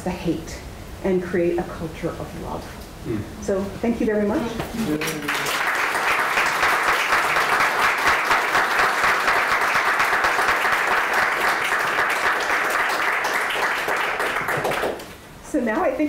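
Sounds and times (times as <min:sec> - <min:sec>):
audience applauding: 0:04.9 - 0:15.2.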